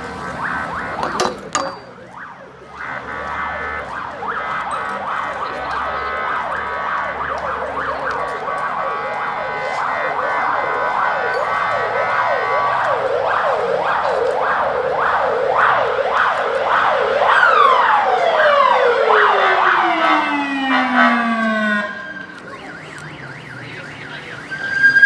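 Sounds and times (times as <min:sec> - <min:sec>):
emergency vehicle sirens yelping: 0:00.0 - 0:25.0
siren tone sliding down: 0:05.3 - 0:25.0.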